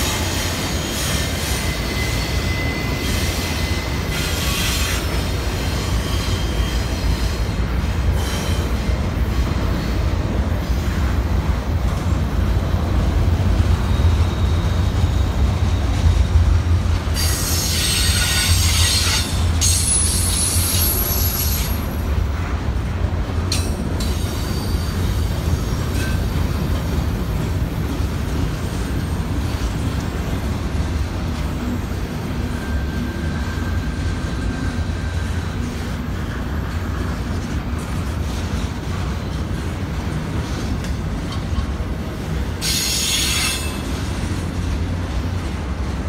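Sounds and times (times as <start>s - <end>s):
high wheel squeal: 0.0s - 7.5s, 17.1s - 22.0s, 24.0s - 26.2s, 42.6s - 43.9s
freight train rumbling past: 0.0s - 46.0s.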